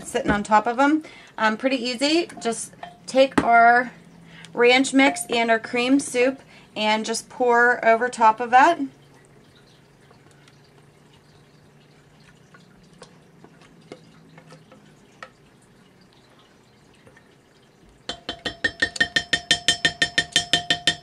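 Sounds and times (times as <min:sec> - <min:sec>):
thick mixture plopping and dripping: 0:08.8 - 0:21.0.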